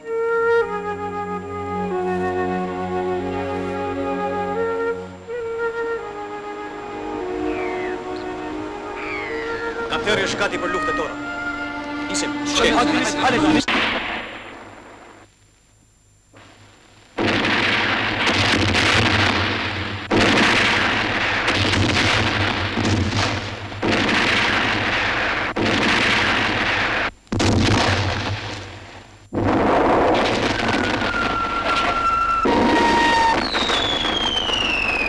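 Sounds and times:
heavy explosions rumbling: 17.2 - 35.0.

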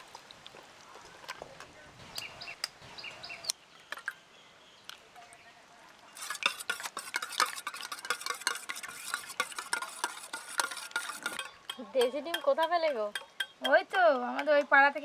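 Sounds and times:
whisk beating in metal bowl: 6.2 - 13.8
eggs cracking taps: 6.4 - 14.7.

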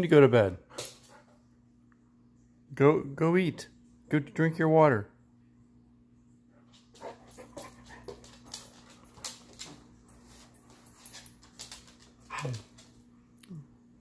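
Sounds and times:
dog claws clicking on floor: 6.7 - 13.0
dog panting: 6.9 - 10.9
dog whining: 12.3 - 12.8.

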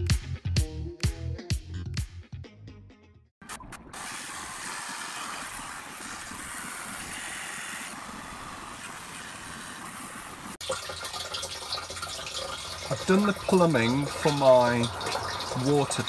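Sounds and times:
water pouring into plastic tank: 8.7 - 16.0.

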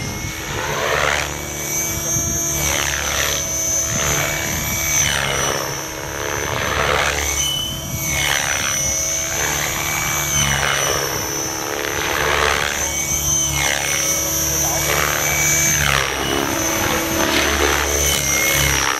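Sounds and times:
helicopter rotor whoosh: 0.0 - 18.9
high electric motor whine: 0.0 - 18.9.

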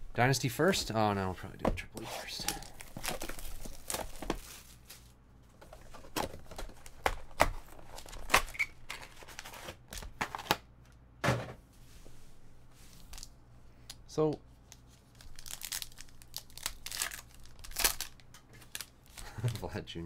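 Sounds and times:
shrink-wrap crinkling: 2.4 - 5.2, 14.7 - 19.8
foil packs rustling and clicking: 15.2 - 19.8.

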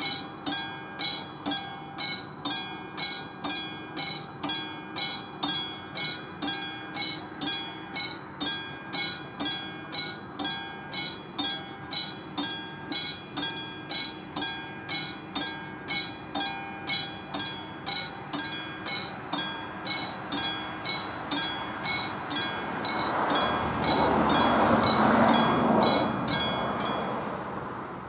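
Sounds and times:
level crossing warning bell: 0.0 - 27.7.

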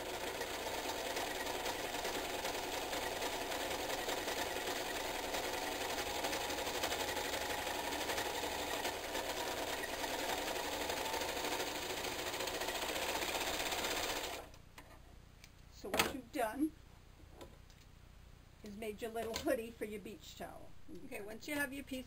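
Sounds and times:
overlock sewing machine running: 0.0 - 14.5.

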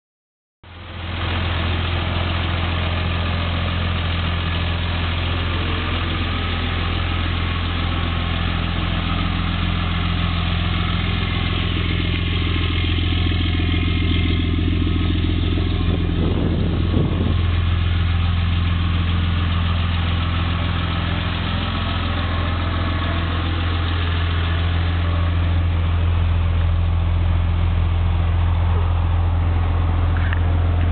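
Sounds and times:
pickup engine idling: 0.6 - 30.9.

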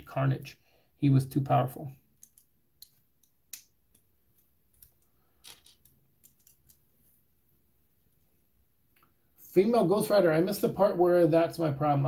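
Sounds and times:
plastic bricks clicking together: 4.8 - 6.8.

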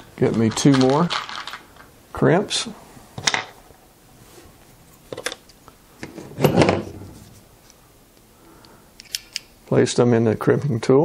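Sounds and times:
rattling clatter on tabletop: 6.0 - 7.2.

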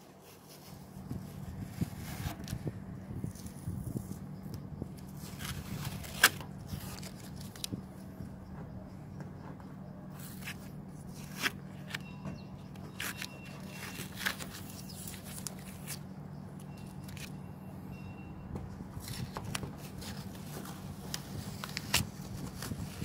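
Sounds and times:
steady low hum: 0.0 - 23.0
masking tape peeling: 5.0 - 7.8, 12.8 - 16.0.

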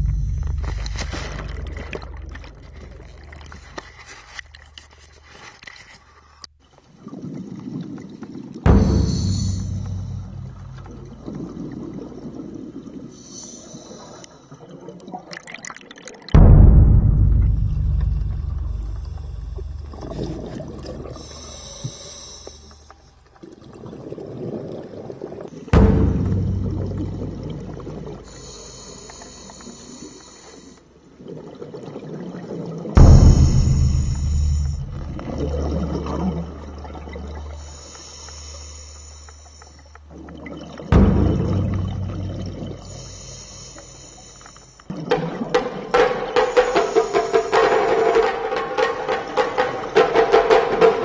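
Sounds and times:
air bubbles fizzing underwater: 0.0 - 4.3, 31.2 - 51.0
deep rumble: 0.0 - 4.5, 8.7 - 12.2, 16.4 - 21.4, 25.8 - 28.3, 33.0 - 37.7, 40.9 - 44.0
hissing regulator inhale: 13.1 - 14.6, 21.1 - 23.0, 28.2 - 30.9, 37.4 - 39.9, 42.6 - 44.9, 46.2 - 47.9.

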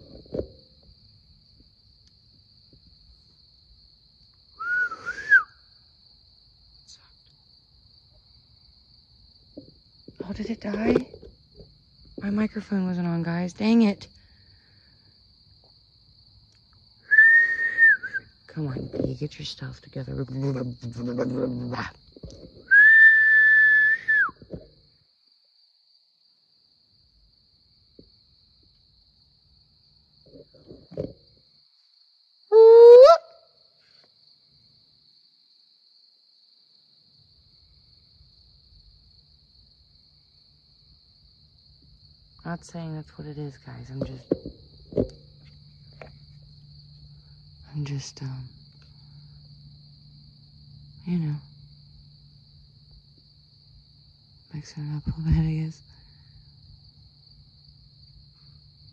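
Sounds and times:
crickets chirring: 0.0 - 58.9
human whistle rising and falling: 4.6 - 5.6, 17.1 - 18.3, 22.7 - 24.4, 32.5 - 33.3.

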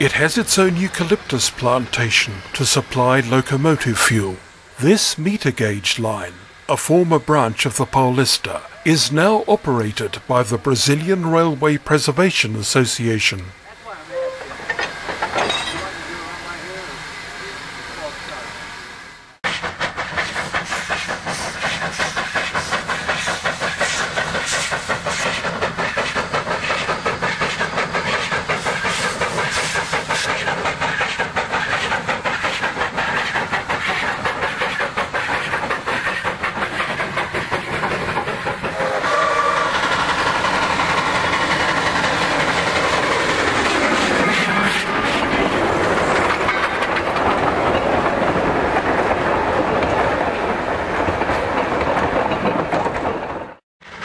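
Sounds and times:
steam locomotive exhaust beats: 0.0 - 54.0
train wheels clattering over rail joints: 14.4 - 16.2, 19.5 - 54.0
steam whistle: 38.8 - 39.7.

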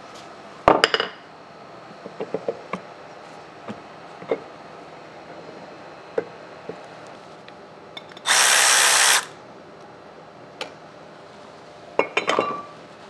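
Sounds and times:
cordless power tool running: 8.2 - 9.4.

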